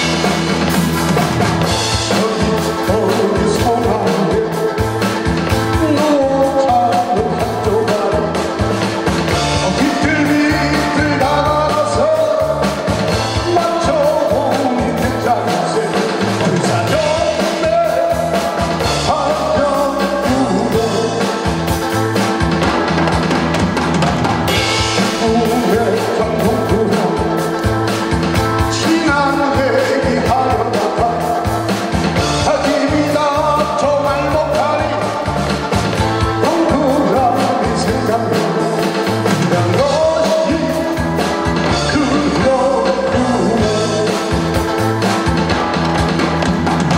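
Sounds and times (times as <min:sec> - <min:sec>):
backing track with drum beat: 0:00.0 - 0:46.9
man singing into microphone: 0:01.9 - 0:08.7, 0:09.3 - 0:21.6, 0:25.0 - 0:27.8, 0:28.6 - 0:35.4, 0:36.2 - 0:44.6.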